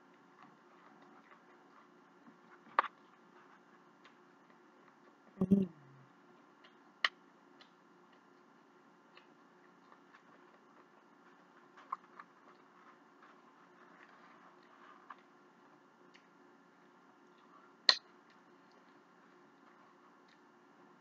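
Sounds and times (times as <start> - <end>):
low mouth sound: 5.4 - 6.1.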